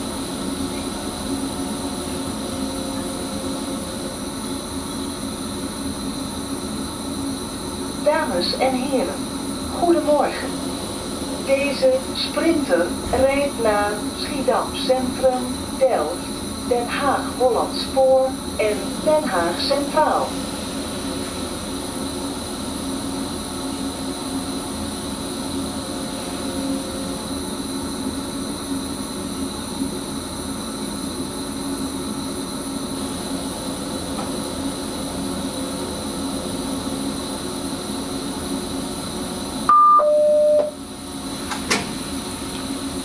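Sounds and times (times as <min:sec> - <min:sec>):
train cab hum: 0:00.0 - 0:43.0
two-note radio signal: 0:39.7 - 0:40.8.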